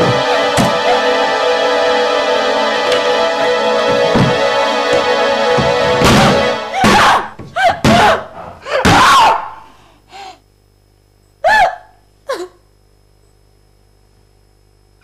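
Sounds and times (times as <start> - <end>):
background music: 0.0 - 7.4
sudden thud: 5.6 - 8.2
woman sobbing and wailing: 6.2 - 9.1, 11.4 - 12.6.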